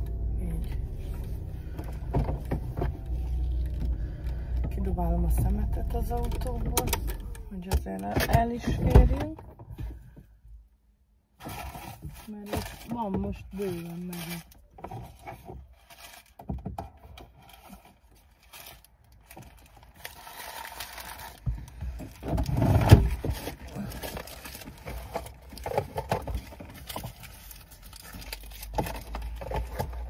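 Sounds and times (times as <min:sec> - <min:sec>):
rustling and scraping in car: 0:00.0 - 0:10.7, 0:11.3 - 0:30.0
loud low rumbling thud: 0:03.8 - 0:07.8.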